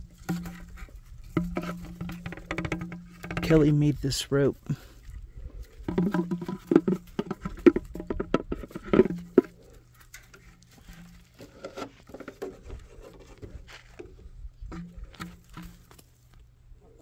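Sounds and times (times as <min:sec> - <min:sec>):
goose bill tapping on plastic: 0:00.0 - 0:03.7, 0:05.6 - 0:12.8.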